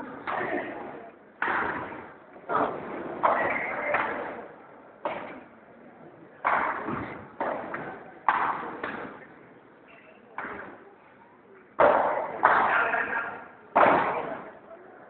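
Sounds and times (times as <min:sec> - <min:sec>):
ball struck by rackets: 0:01.4 - 0:04.4, 0:05.0 - 0:05.4, 0:06.4 - 0:09.3, 0:11.8 - 0:12.9, 0:13.8 - 0:14.5.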